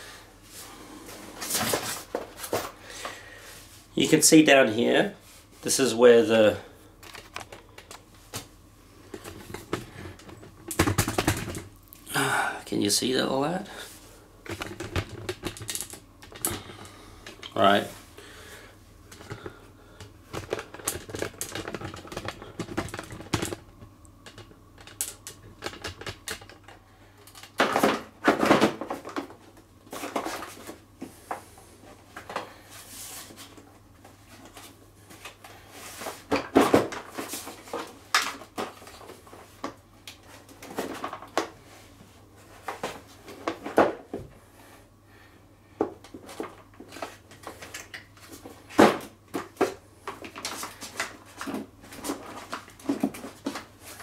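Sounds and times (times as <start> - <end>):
plastic parts clattering and clicking: 14.5 - 17.5, 20.3 - 23.6, 24.2 - 29.3.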